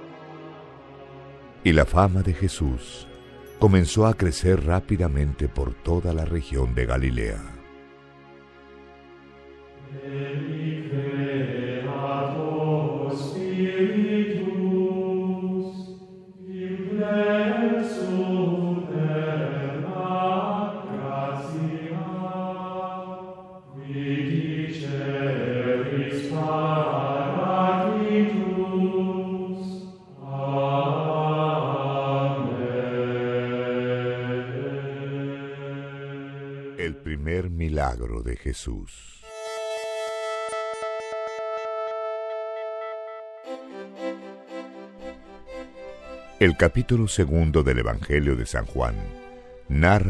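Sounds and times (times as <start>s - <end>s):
person chanting slowly: 46.4s - 50.0s.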